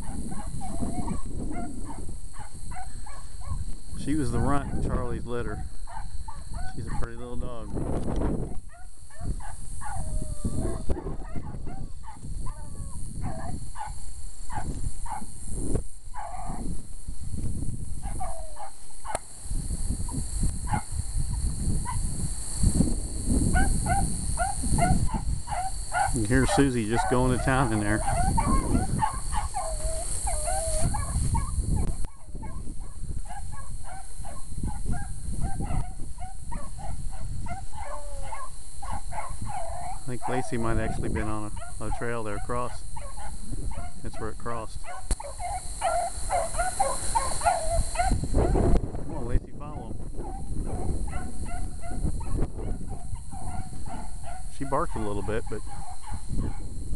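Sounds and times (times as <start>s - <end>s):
beagle baying: 0.0s - 3.6s, 5.5s - 7.2s, 8.5s - 15.3s, 16.1s - 16.7s, 18.0s - 19.2s, 20.6s - 20.9s, 23.5s - 41.0s, 41.6s - 48.6s, 50.2s - 56.7s.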